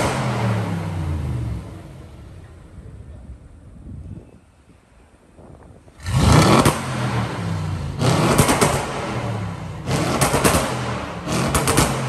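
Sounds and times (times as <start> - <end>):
car engine revving: 0.0 - 2.2, 6.0 - 12.0
exhaust crackles and pops: 8.0 - 12.0.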